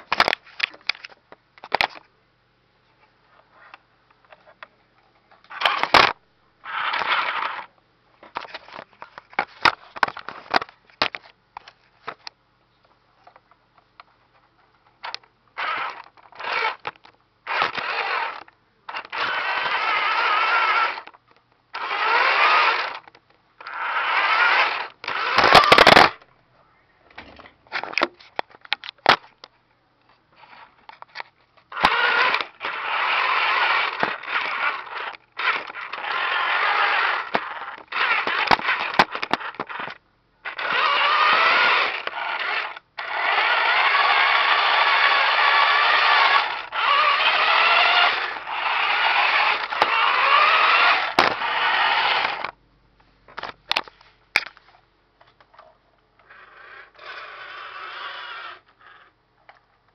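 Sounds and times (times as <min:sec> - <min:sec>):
toy motor and gears whirring: 0:05.5 - 0:07.7, 0:15.6 - 0:21.2, 0:21.8 - 0:26.2, 0:31.7 - 0:52.5, 0:56.2 - 0:59.2.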